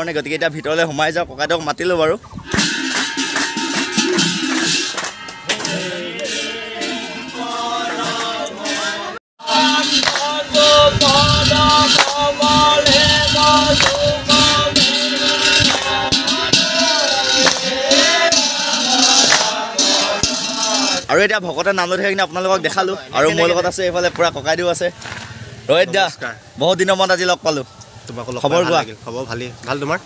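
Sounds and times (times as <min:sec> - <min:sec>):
jingling hand percussion: 0:02.5 - 0:07.7, 0:08.7 - 0:21.1
group chanting: 0:02.5 - 0:21.0.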